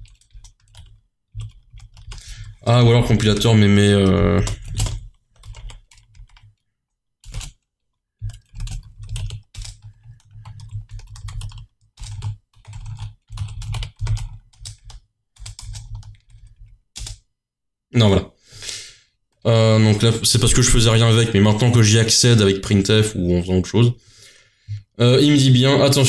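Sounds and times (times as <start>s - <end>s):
typing on computer keyboard: 0.0s - 17.3s.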